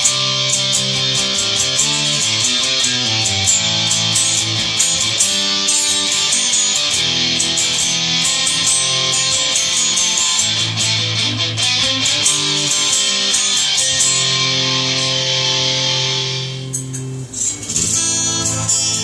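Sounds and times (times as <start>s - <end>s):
electric guitar chords: 0.0s - 19.0s.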